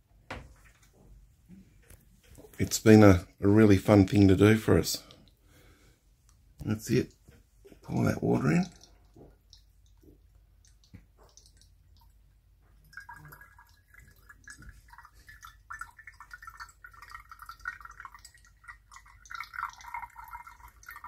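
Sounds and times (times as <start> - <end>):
water trickling through funnel: 6.3 - 21.0.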